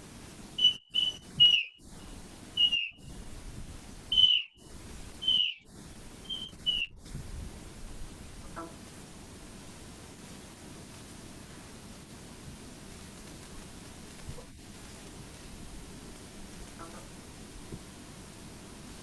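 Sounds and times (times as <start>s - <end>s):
high chirping whistles: 0.6s - 3.1s, 4.1s - 4.6s, 5.2s - 6.9s.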